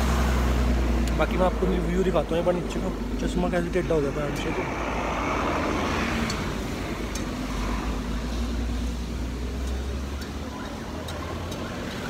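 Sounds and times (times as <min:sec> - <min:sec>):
vehicle driving past: 0:00.0 - 0:09.2.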